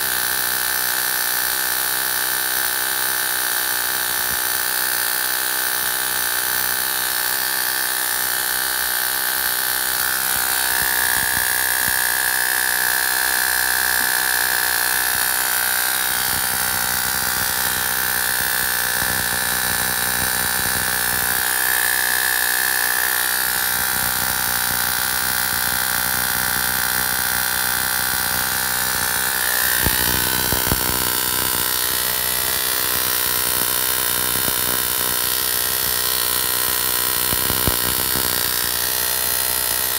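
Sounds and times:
high whine: 9.9 - 25.6, 27.8 - 35.1
electrical buzz and hiss: 9.9 - 38.9
electrical crackling: 28.3 - 35.1.

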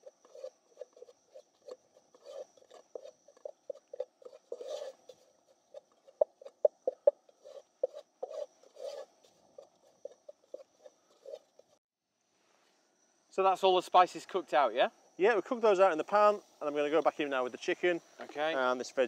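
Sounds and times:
spatula scraping a pot: 0.0 - 11.8.

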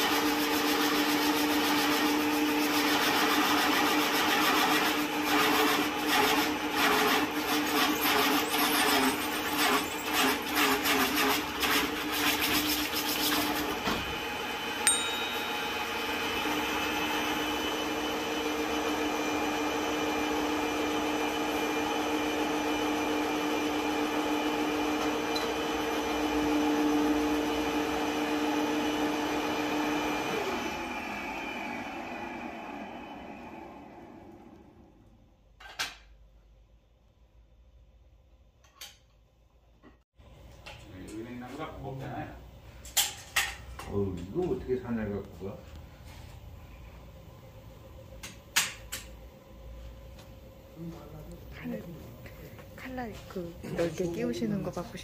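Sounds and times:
woodworking machine humming: 0.0 - 12.2, 13.2 - 35.1.

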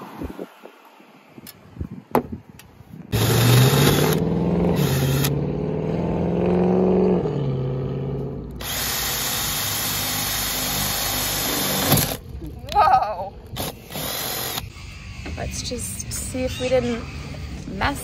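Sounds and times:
harsh cutting noise: 3.1 - 5.4
cordless drill boring metal: 3.2 - 4.2, 4.8 - 5.3, 8.6 - 12.2, 13.6 - 14.9.

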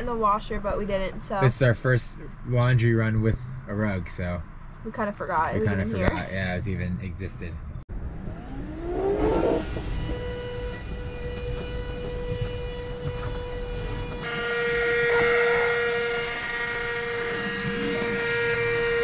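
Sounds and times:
vacuum motor whine: 7.9 - 19.0.

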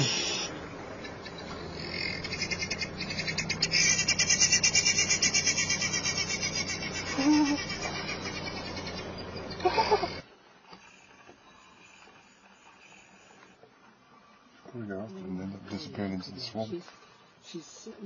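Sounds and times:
animal call: 0.0 - 10.2
high-pitched pulsing trilling: 0.0 - 10.2.

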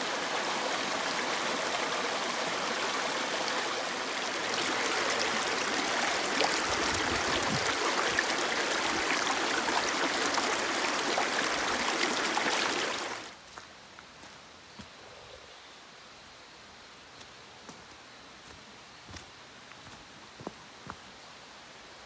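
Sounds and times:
mountain stream splashing over rocks: 0.0 - 13.6.

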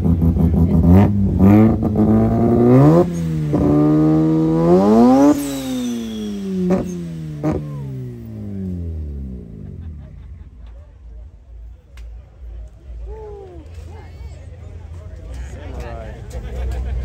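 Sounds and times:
car engine revving: 0.0 - 10.2
sharp exhaust cracks: 0.1 - 9.6.

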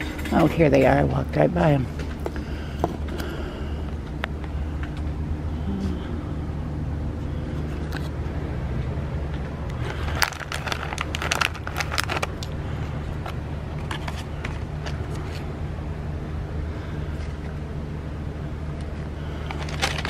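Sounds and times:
steady low rumble: 0.0 - 20.0
plastic packets crinkling: 9.7 - 15.4, 19.3 - 20.0.

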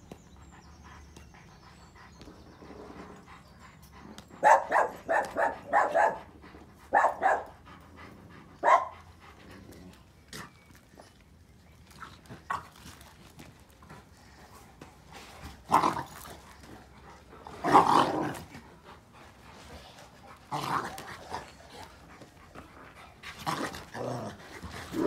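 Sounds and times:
dog barking: 4.4 - 6.2, 6.9 - 7.4, 8.6 - 8.9.

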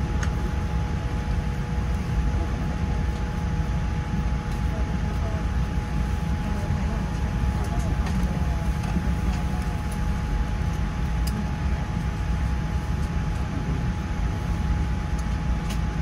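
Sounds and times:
airliner cabin rumble: 0.0 - 16.0
faint steady whine: 0.0 - 16.0.

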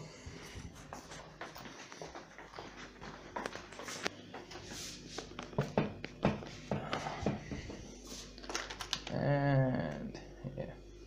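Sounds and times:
footsteps on hard floor: 0.4 - 8.4.

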